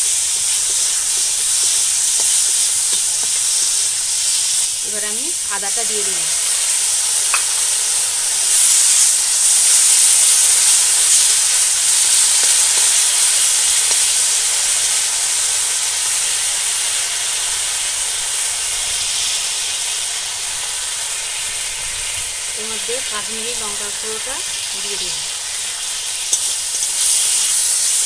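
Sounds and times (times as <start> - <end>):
vegetables sizzling in hot oil: 0.0 - 28.0
spatula stirring in wok: 18.3 - 28.0.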